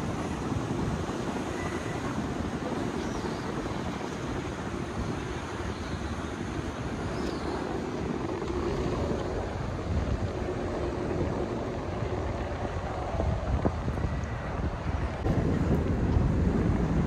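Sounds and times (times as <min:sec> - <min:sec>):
wind buffeting microphone: 0:00.0 - 0:17.0
low rumble: 0:08.2 - 0:17.0.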